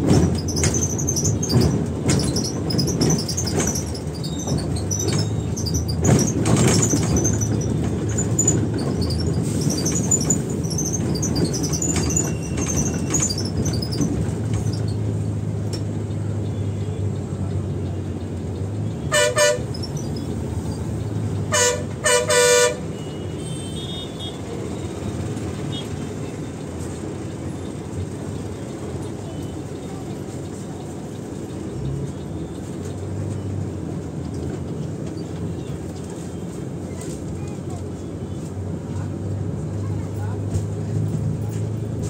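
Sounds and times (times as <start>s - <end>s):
bus engine and road noise: 0.0s - 42.0s
vehicle horn honks: 19.1s - 19.7s, 21.5s - 24.4s.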